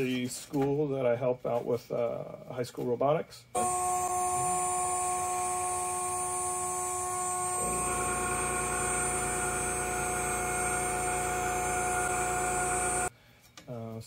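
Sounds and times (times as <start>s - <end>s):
router spindle high whine: 3.6s - 13.1s
low rumble and hum: 4.1s - 13.1s.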